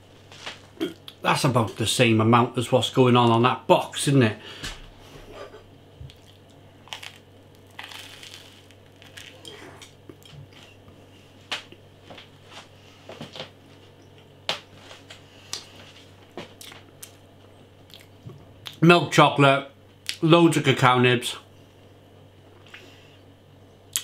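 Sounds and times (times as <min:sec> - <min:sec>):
chewing crunchy toast: 0:06.1 - 0:10.6.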